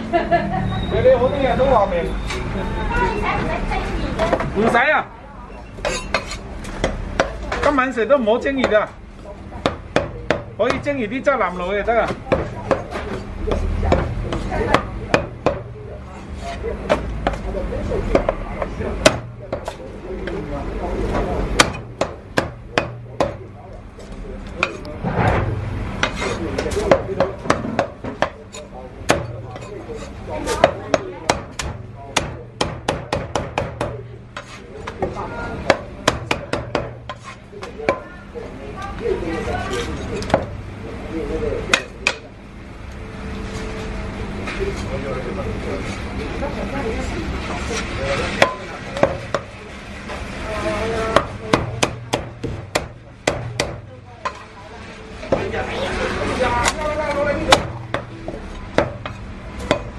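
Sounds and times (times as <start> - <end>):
cleaver chopping on wooden block: 30.5 - 35.0, 51.1 - 54.4.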